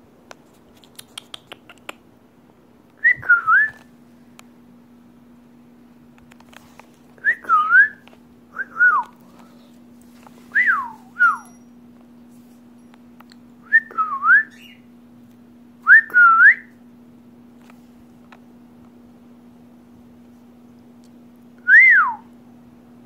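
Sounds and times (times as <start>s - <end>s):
person whistling: 3.0s - 3.8s, 8.6s - 9.1s, 10.5s - 11.6s, 13.6s - 14.8s, 15.8s - 16.7s, 21.6s - 22.3s.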